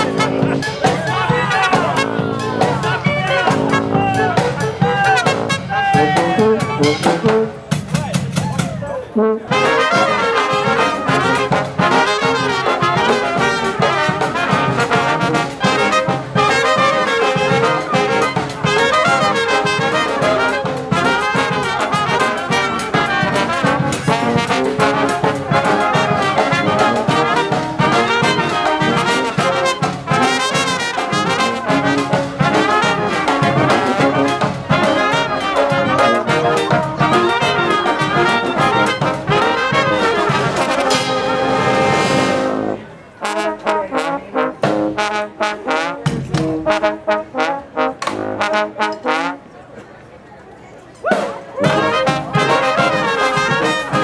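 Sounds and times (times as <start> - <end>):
brass band playing: 0.0 - 49.6, 51.1 - 54.0.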